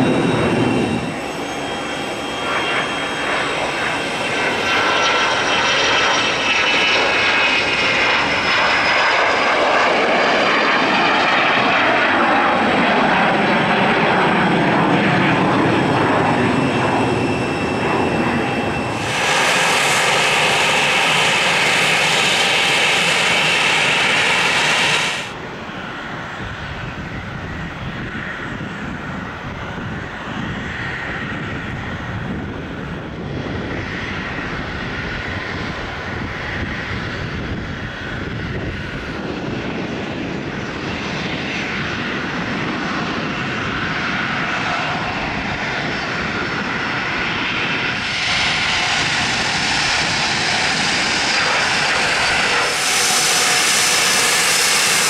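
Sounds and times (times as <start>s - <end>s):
jet engine high whine: 0.0s - 55.0s
jet engines roaring at takeoff: 0.0s - 55.0s.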